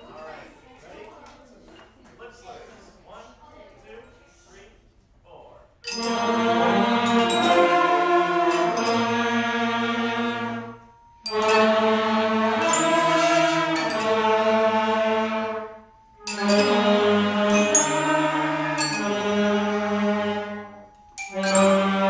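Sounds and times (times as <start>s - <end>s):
concert band holding chords: 5.9s - 22.0s.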